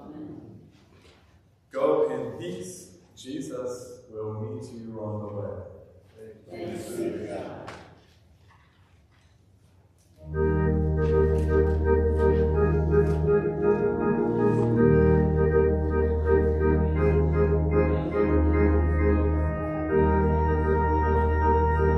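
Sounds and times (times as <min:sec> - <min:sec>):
church organ playing full chords: 0:10.2 - 0:21.9.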